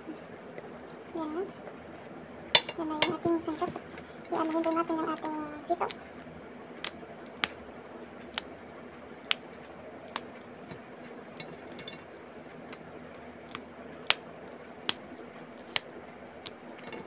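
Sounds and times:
beans snapping by hand: 4.6s - 7.7s, 8.3s - 8.5s, 9.2s - 10.4s, 11.4s - 17.0s.

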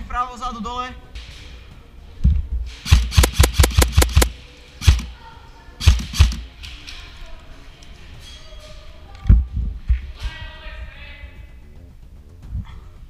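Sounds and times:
faint background music: 0.0s - 13.0s
airsoft rifle shots: 2.8s - 5.2s, 5.8s - 6.6s.

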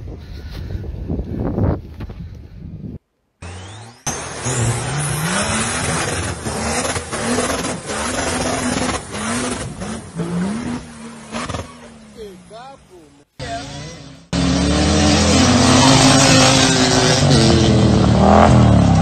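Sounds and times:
suv engine revving hard: 3.4s - 12.0s, 13.4s - 19.0s.

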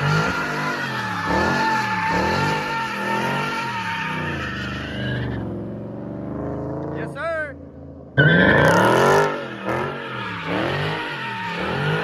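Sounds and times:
tyres squealing: 0.0s - 5.5s, 9.3s - 12.0s
car engine revving: 0.0s - 12.0s.

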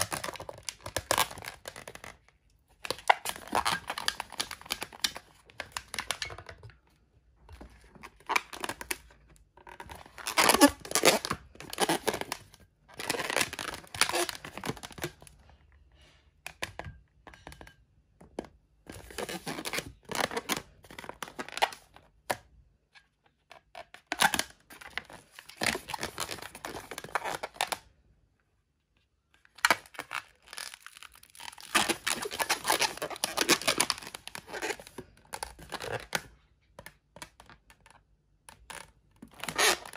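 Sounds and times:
balloon rubbing and squeaking: 3.4s - 4.0s, 10.1s - 12.3s, 13.0s - 14.5s, 19.1s - 20.2s, 31.4s - 34.9s, 39.4s - 39.9s.

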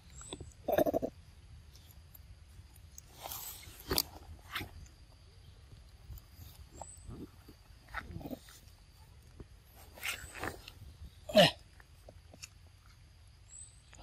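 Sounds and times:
high monkey chirp: 0.0s - 2.0s.

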